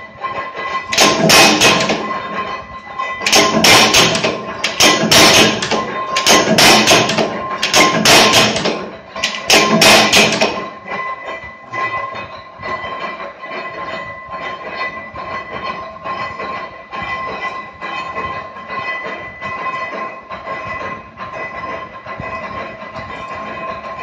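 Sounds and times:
press sharp metallic strikes: 0:00.7 - 0:11.1.

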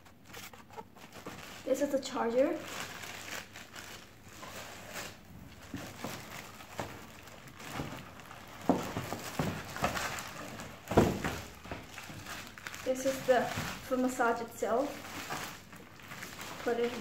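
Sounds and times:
plastic wrapping crinkling: 0:00.0 - 0:17.0
dull thumps: 0:05.6 - 0:12.3.

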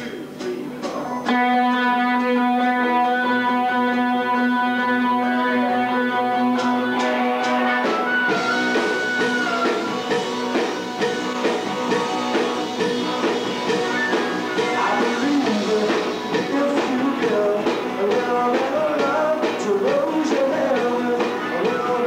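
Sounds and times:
rock band playing: 0:00.0 - 0:22.0
electric guitar chord ringing: 0:01.3 - 0:16.6
drum hits: 0:06.6 - 0:22.0.

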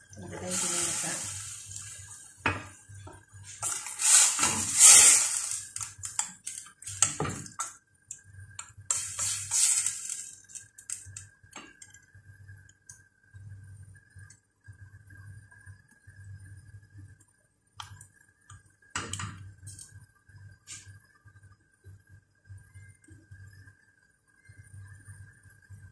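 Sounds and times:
turner scraping a metal pot: 0:03.5 - 0:07.7, 0:08.6 - 0:11.2.

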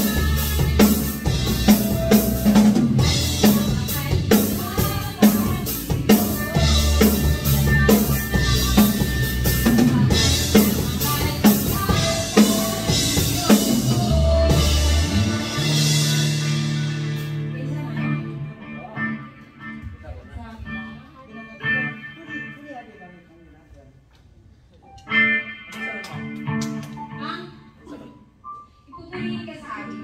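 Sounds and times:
drum kit slow beat: 0:00.0 - 0:18.1
live band playing slow song: 0:00.0 - 0:22.9, 0:24.9 - 0:28.8.

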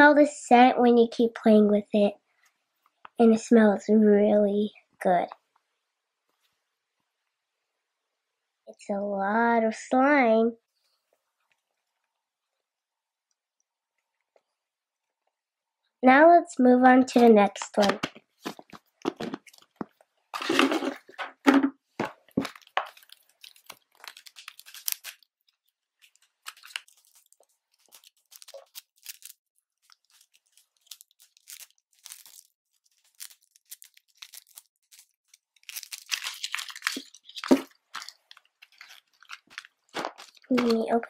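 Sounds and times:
plastic packaging crinkling: 0:17.6 - 0:21.2, 0:22.0 - 0:41.0.

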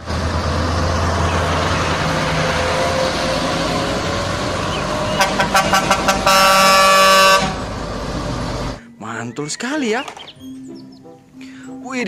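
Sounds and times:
truck diesel engines running: 0:00.0 - 0:08.9
truck air horn: 0:04.9 - 0:07.7.

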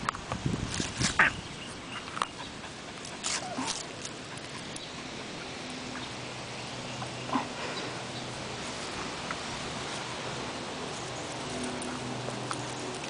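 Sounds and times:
dogs play-fighting: 0:01.0 - 0:10.1, 0:10.9 - 0:13.0
small dog noises: 0:01.2 - 0:06.2, 0:07.0 - 0:07.9.

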